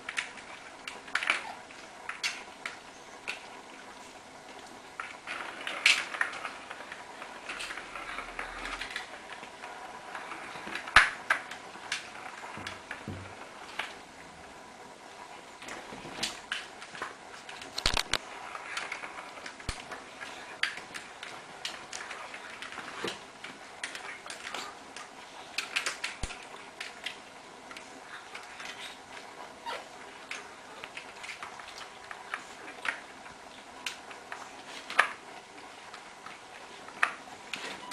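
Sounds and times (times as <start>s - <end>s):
ball rattling in plastic track: 4.7s - 14.0s.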